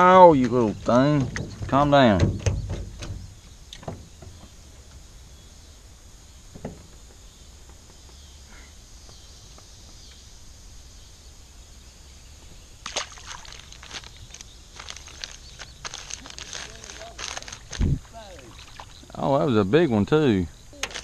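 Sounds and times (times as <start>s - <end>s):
faint steady hiss: 0.0s - 21.0s
knocks: 0.4s - 4.5s.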